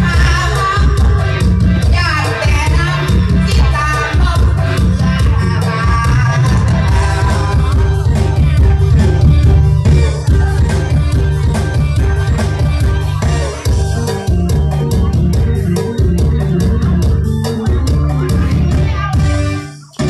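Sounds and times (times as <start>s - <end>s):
woman singing into a microphone: 0.0s - 8.1s
folk music over a pa system: 0.0s - 20.0s.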